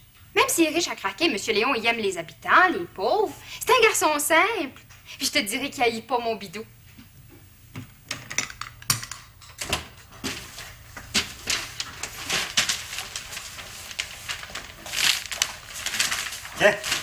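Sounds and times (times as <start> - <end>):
footsteps: 9.9 - 17.0
paper rustling: 10.1 - 17.0.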